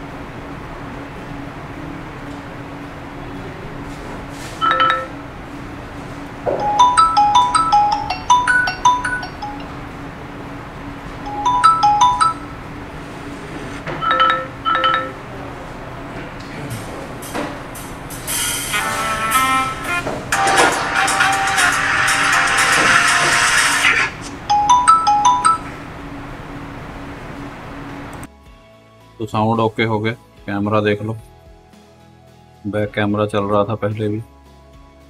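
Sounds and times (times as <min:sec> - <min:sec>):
phone ringtone chiming: 0:04.6 - 0:05.2, 0:06.6 - 0:10.1, 0:11.2 - 0:15.2, 0:18.2 - 0:26.2.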